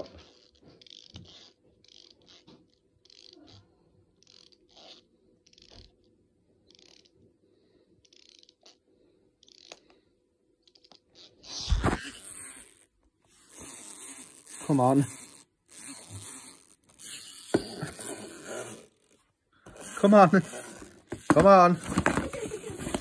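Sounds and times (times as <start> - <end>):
wind-up toy ratchet clicking: 12.0 - 12.9, 13.5 - 19.2.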